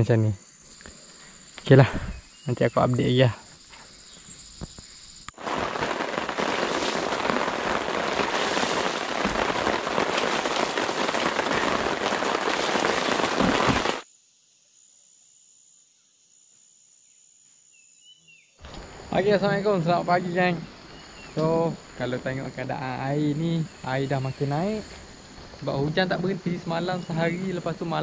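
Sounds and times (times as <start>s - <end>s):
faint insect chirring: 0.0s - 28.0s
heavy rain on a tarp: 5.4s - 14.0s.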